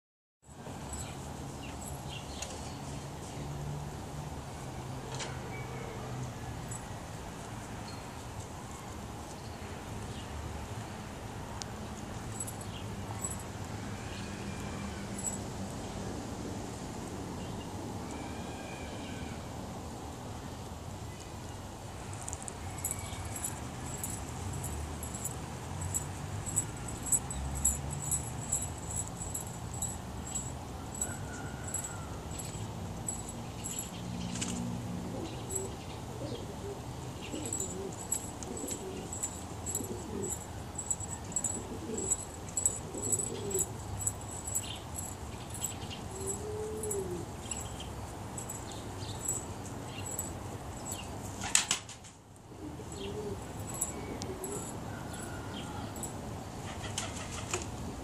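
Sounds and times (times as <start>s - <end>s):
pigeons cooing: 34.9s - 44.6s, 45.5s - 47.6s, 52.5s - 55.2s.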